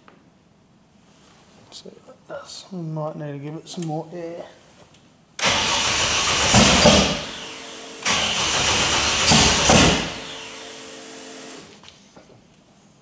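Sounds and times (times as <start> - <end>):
engine cranking on starter: 5.4 - 10.5
engine running rough: 8.1 - 10.3.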